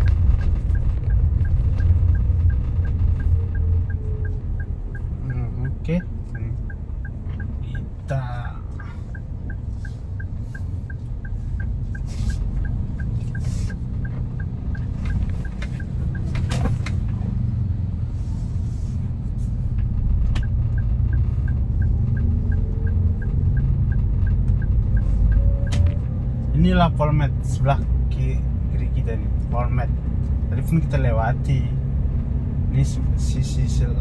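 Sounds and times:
high ticking beep: 0.0s - 16.4s, 20.4s - 26.0s
vehicle road and engine rumble: 0.0s - 34.0s.

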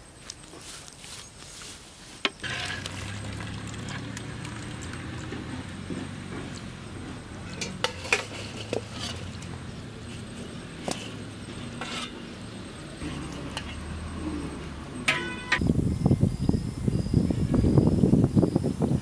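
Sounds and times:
ladle clinking on metal: 7.4s - 9.6s, 15.1s - 15.6s.

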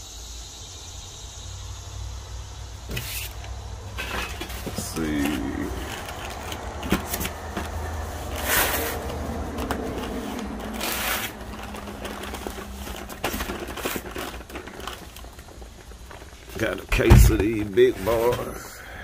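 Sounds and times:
cardboard knocks and rustling: 16.4s - 18.5s.

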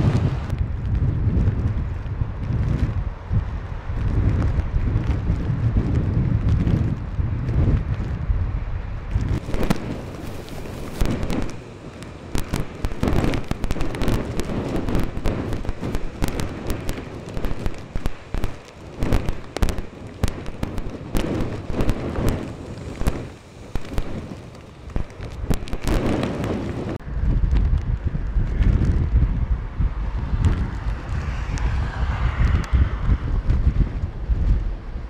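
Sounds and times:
wind gusting over microphone: 0.0s - 35.0s
crackling pops: 9.1s - 29.3s, 30.2s - 34.6s.

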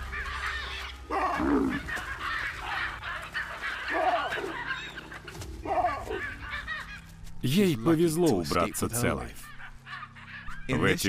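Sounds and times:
baboons screaming: 0.0s - 7.2s, 8.6s - 11.0s.

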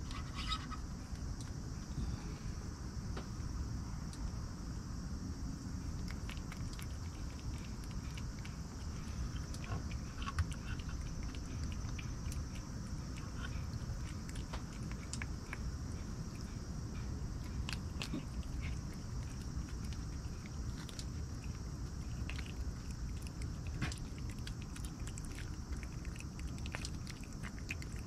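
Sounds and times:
low background rumble: 0.0s - 28.0s
cat chewing: 5.8s - 28.0s.

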